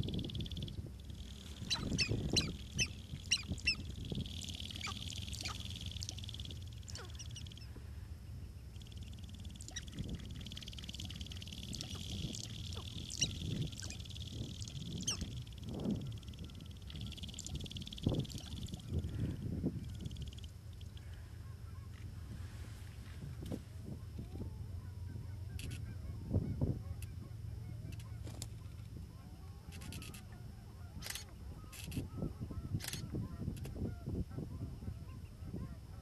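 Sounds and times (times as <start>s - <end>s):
steady high buzz: 0.0s - 36.0s
grouse cackling calls: 1.3s - 7.4s.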